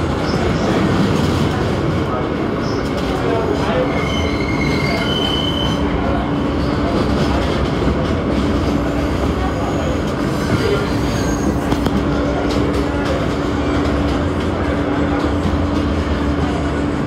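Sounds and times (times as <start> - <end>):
train wheels rumbling and rattling: 0.0 - 17.0
high wheel squeals: 3.9 - 5.9, 10.6 - 11.7.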